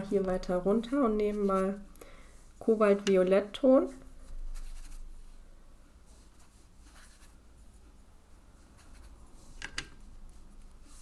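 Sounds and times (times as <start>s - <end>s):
paintbrush brushing on paper: 1.0s - 1.9s, 4.0s - 9.6s, 10.3s - 11.0s.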